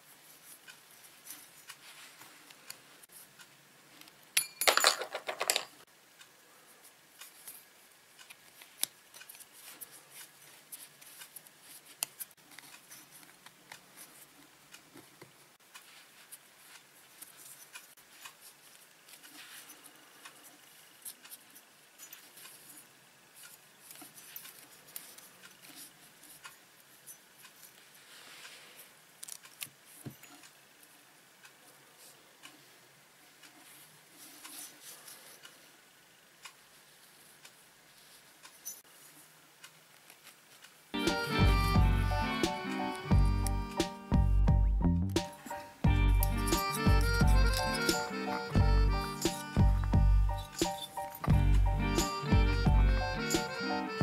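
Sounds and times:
small metal clicks and scrapes: 7.2s - 30.6s, 33.4s - 35.7s, 37.4s - 40.8s.

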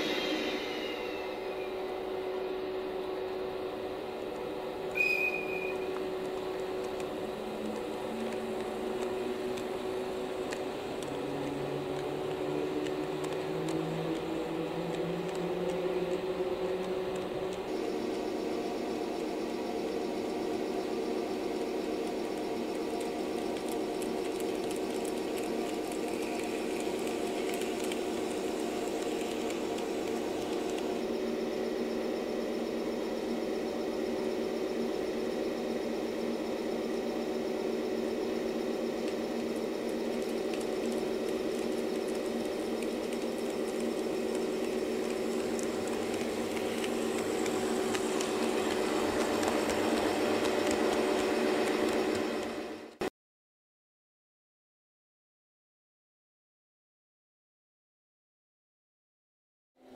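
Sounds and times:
model train humming: 0.0s - 53.0s.

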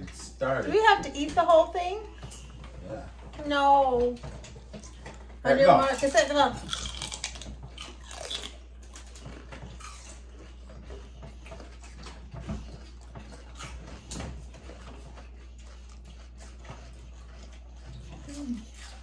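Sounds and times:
people chewing crunchy celery: 4.4s - 19.0s.

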